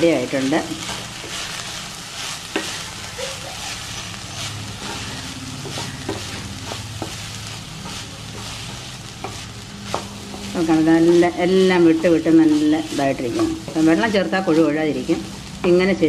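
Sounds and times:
wooden spatula scraping pan: 0.0 - 15.5
food sizzling in pan: 0.0 - 16.0
spatula knocking on pan: 5.6 - 15.9.

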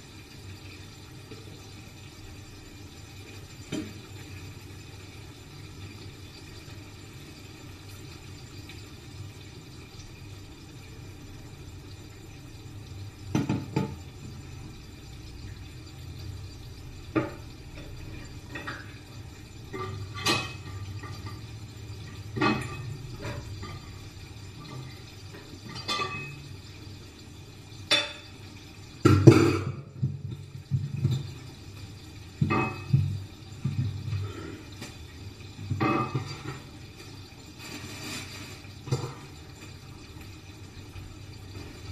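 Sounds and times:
dishes and utensils clinking: 19.7 - 21.6, 25.6 - 26.4, 35.7 - 36.7.

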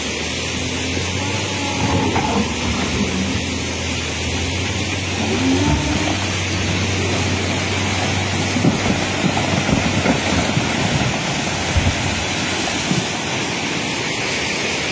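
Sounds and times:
river rushing: 0.0 - 14.9
wheel loader engine hum: 0.0 - 14.9
low knocks and thuds: 4.7 - 13.2.

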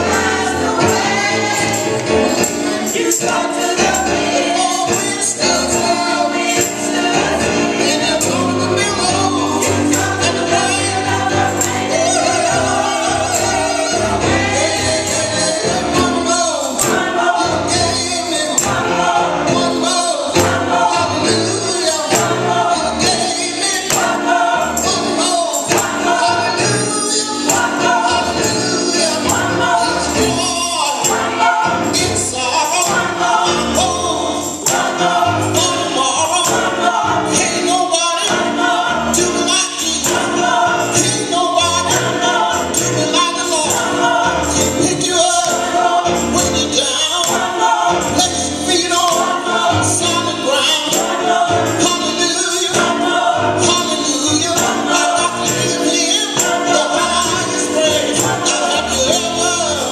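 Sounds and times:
tambourine beat: 0.0 - 59.9
women's gospel choir singing: 0.0 - 59.9.

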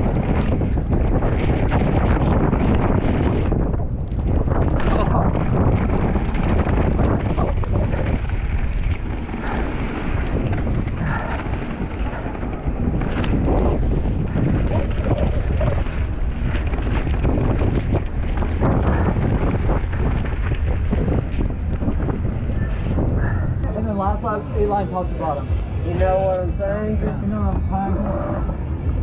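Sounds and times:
mountain bike rattling downhill: 0.0 - 22.6
wind rushing over microphone: 0.0 - 29.0.

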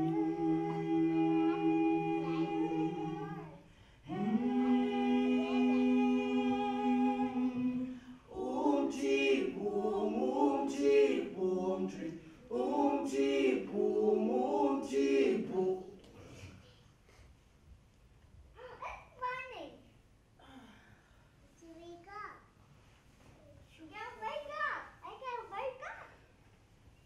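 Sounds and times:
group singing a cappella: 0.0 - 16.4.

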